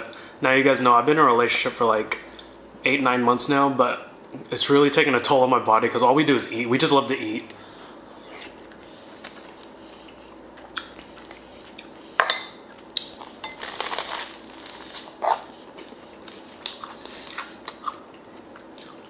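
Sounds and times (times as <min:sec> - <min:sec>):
crusty bread being bitten: 0:12.9 - 0:19.0.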